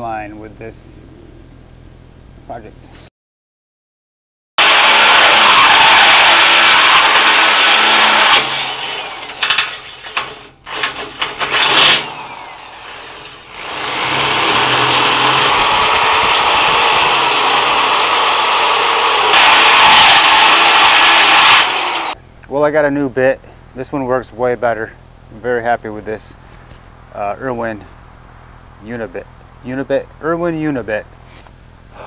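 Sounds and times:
drill boring through sheet metal: 0:04.6 - 0:22.2
metal knocks and clanks: 0:09.4 - 0:12.1.

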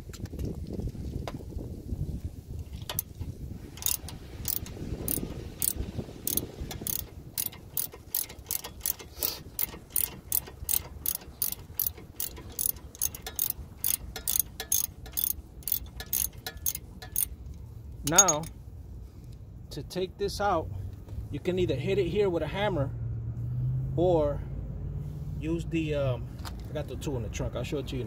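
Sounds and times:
hand ratchet clicking: 0:02.8 - 0:18.5.

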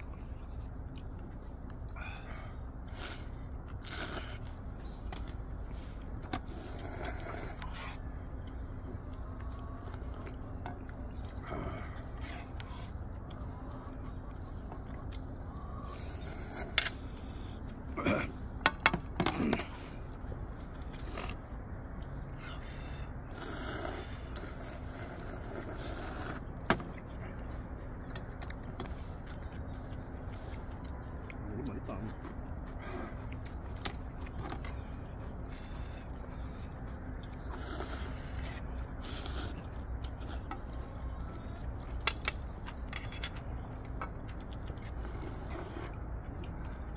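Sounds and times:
low background noise: 0:00.0 - 0:46.9
slurping noodles: 0:23.3 - 0:26.5.

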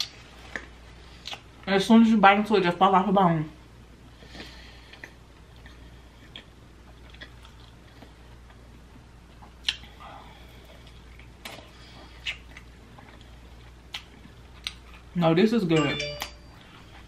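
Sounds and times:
quiet chewing: 0:04.2 - 0:08.7, 0:09.3 - 0:15.2.

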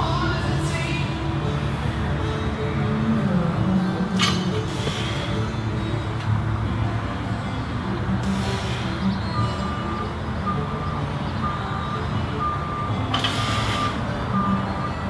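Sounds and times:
vehicle backup alarm beeping: 0:04.5 - 0:15.0.

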